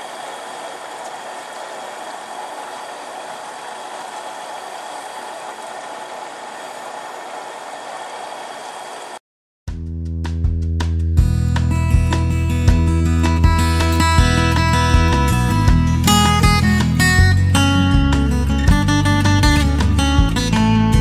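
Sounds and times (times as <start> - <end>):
burner and frying oil roar: 0.0 - 9.2.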